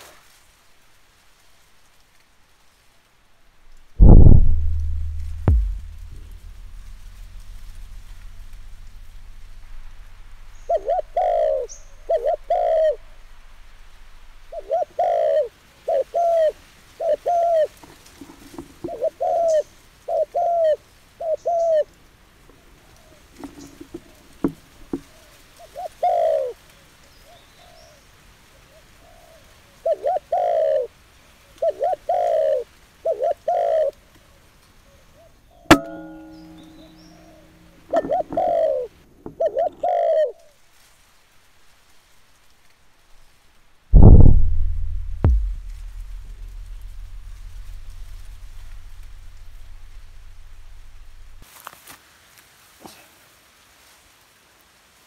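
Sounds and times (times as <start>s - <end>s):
air rifle firing: 4.0s - 9.9s, 44.0s - 48.4s
dove cooing: 10.5s - 13.7s, 14.5s - 21.9s, 25.1s - 26.6s, 29.0s - 30.9s, 31.5s - 34.0s, 35.7s - 40.5s.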